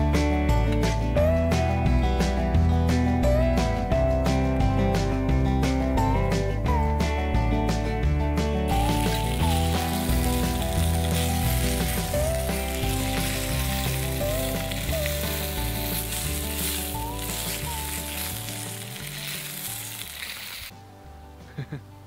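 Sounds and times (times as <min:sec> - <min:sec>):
soft background music: 0:00.0 - 0:22.0
sausages sizzling in a pot: 0:08.7 - 0:20.7.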